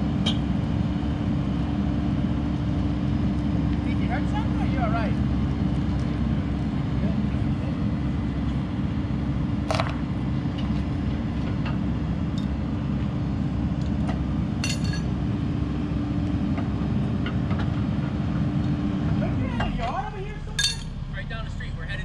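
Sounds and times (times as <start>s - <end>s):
excavator engine running: 0.0s - 22.0s
hydraulic hum: 16.6s - 22.0s.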